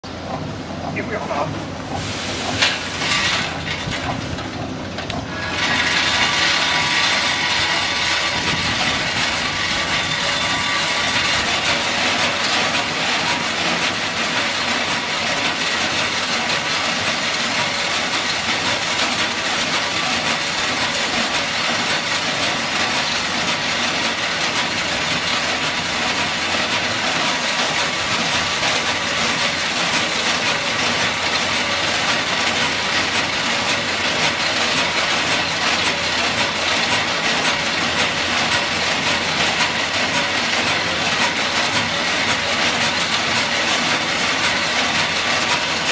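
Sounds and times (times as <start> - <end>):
machinery hum: 0.1 - 45.9
peanuts rattling on steel tray: 5.4 - 12.4.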